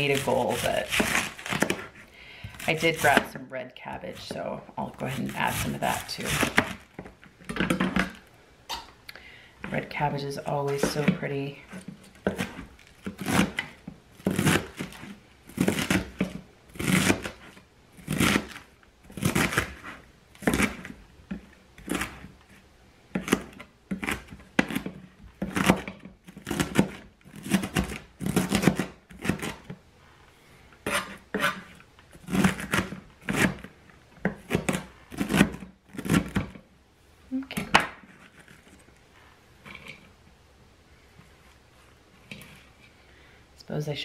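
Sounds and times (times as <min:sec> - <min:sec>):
knife slicing cabbage on board: 0:00.0 - 0:03.3, 0:05.0 - 0:06.9, 0:10.9 - 0:22.3, 0:23.1 - 0:29.7, 0:30.8 - 0:36.5.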